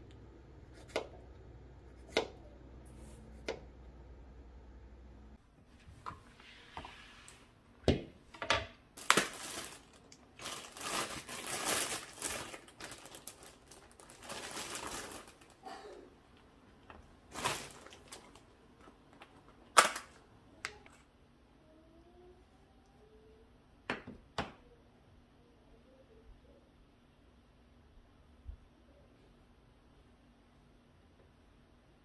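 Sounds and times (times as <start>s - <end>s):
plastic rustling: 9.0s - 16.1s, 16.8s - 20.9s.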